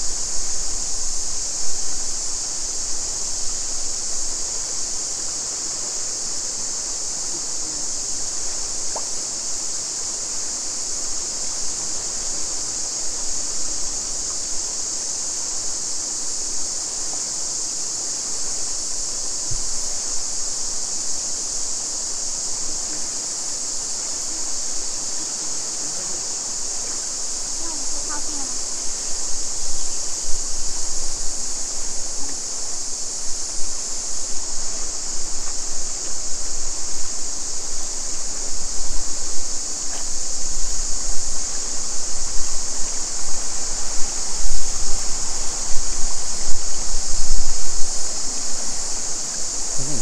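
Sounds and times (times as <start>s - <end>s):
cicadas chorus: 0.0s - 50.0s
creek rushing over rocks: 22.2s - 50.0s.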